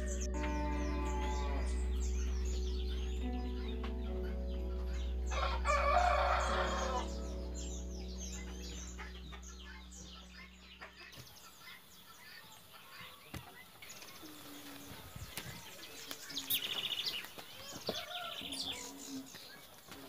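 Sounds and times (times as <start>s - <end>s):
soft background music: 0.0s - 11.5s
small birds chirping: 0.0s - 20.0s
rooster crowing: 5.3s - 7.3s.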